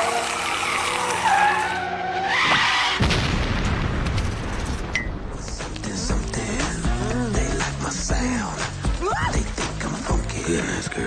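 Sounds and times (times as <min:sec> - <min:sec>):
cartoon tyre screech: 0:00.0 - 0:03.0
cartoon crash with low rumble: 0:03.0 - 0:05.4.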